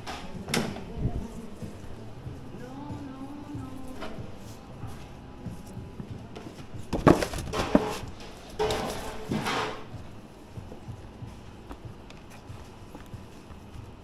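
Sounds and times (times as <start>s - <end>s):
kitchen gear clattering and scraping: 6.9s - 9.9s.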